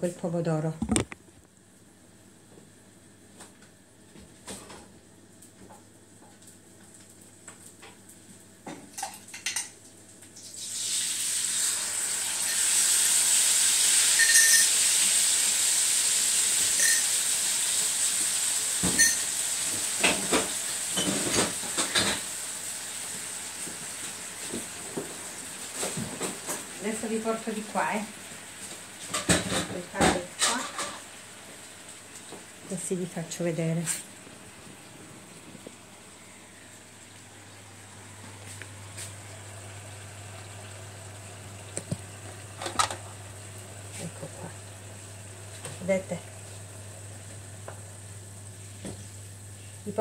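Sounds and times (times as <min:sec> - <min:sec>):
sauce sizzling in hot oil: 0:10.2 - 0:33.2, 0:36.6 - 0:50.0.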